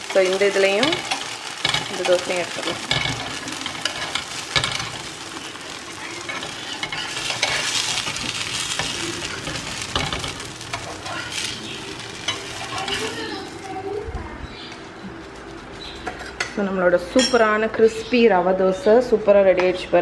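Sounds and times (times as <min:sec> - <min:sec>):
steel spatula scraping pan: 0:00.0 - 0:13.5
dosa sizzling in oil: 0:00.0 - 0:16.5.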